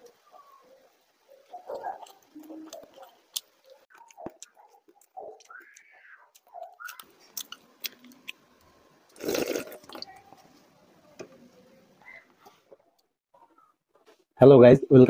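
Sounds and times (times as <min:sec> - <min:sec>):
wet chewing: 0:01.3 - 0:10.4
loud slurp from bowl: 0:09.2 - 0:10.1.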